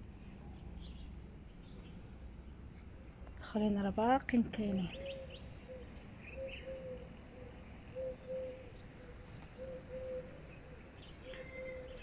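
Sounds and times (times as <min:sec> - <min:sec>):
dove cooing: 0:04.9 - 0:12.0.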